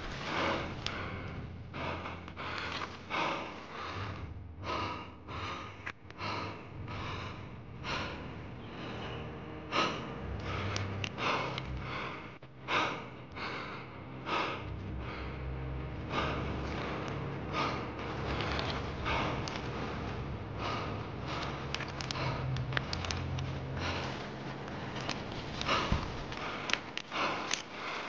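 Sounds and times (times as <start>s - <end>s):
person breathing hard: 0.0s - 28.0s.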